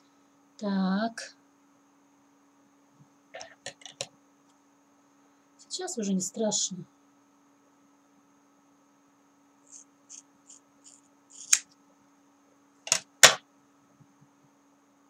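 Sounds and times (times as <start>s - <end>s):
scissors snipping hair: 10.8s - 11.7s.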